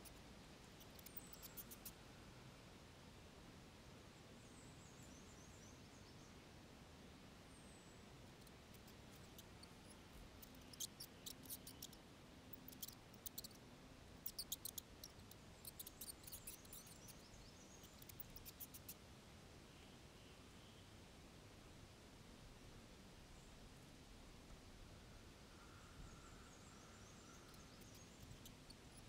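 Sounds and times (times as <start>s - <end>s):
mice squeaking: 0.8s - 1.9s, 8.4s - 13.6s, 14.2s - 17.2s, 17.8s - 19.0s.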